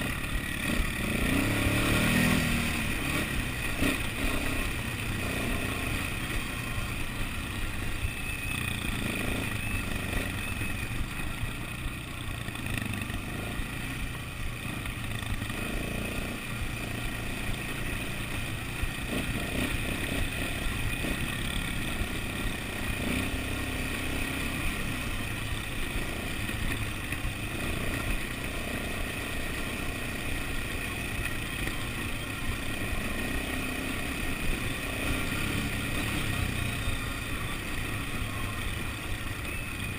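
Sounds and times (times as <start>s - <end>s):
quad bike engine running: 0.0s - 39.9s.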